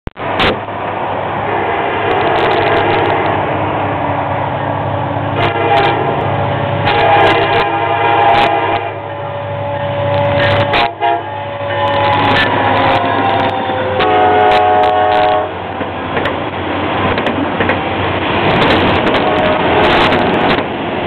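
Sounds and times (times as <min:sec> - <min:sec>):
train rumble: 0:00.1 - 0:21.0
locomotive horn blasts: 0:01.4 - 0:03.3, 0:05.4 - 0:06.2, 0:06.8 - 0:15.6, 0:19.1 - 0:20.2.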